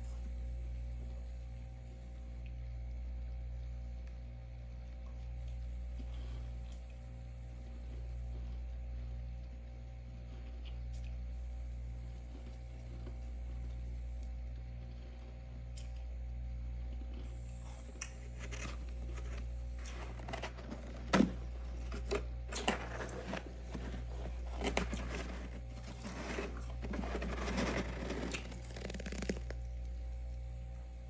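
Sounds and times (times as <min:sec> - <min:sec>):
steady low hum: 0:00.0 - 0:31.0
hand scraping freezer frost: 0:17.7 - 0:29.7.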